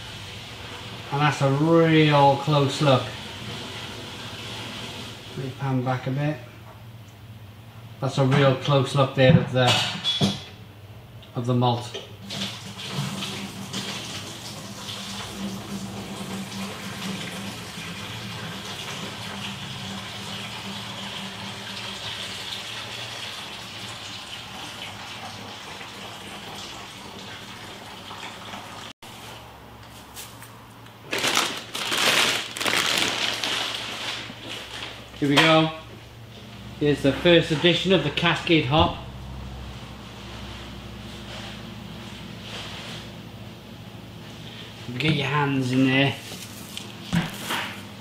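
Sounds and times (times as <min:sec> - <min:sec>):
foil bag crinkling: 0:31.0 - 0:35.4.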